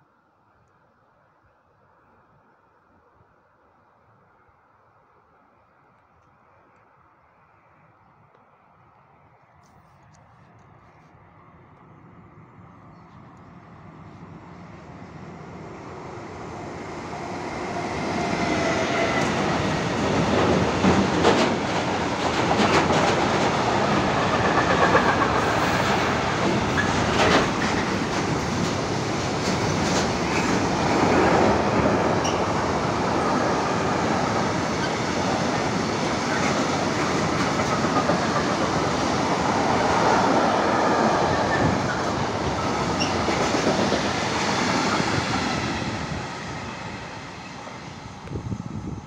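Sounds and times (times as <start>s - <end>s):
train wheels rumbling on rails: 14.0s - 49.0s.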